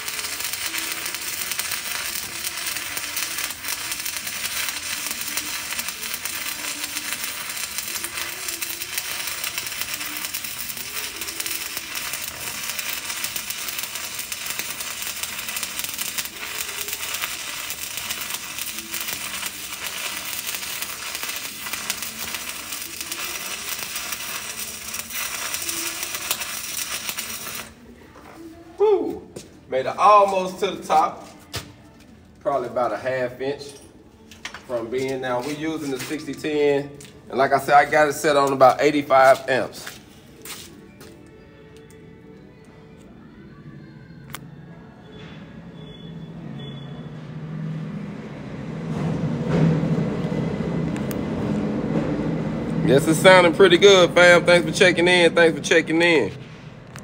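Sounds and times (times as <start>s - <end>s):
welding arc crackling sizzle: 0.0s - 27.9s, 50.2s - 57.0s.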